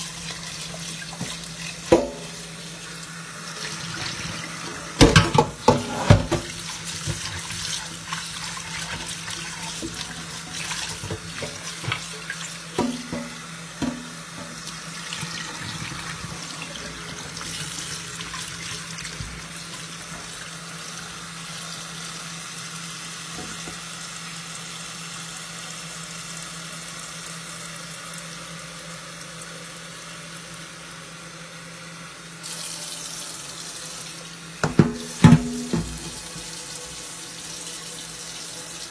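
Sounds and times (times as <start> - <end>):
tap running into steel pot: 12.7 - 14.6, 34.6 - 36.5.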